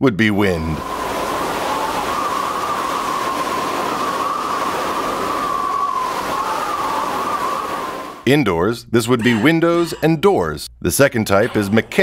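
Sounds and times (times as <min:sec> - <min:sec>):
strong wind rushing: 0:00.6 - 0:08.3
wind whistling: 0:00.6 - 0:08.3.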